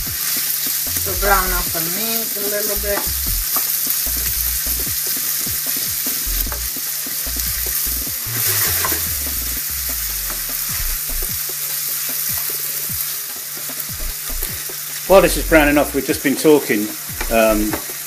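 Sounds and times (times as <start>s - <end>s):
meat sizzling in frying pan: 0.0s - 18.0s
utensil scraping pan: 8.3s - 9.6s.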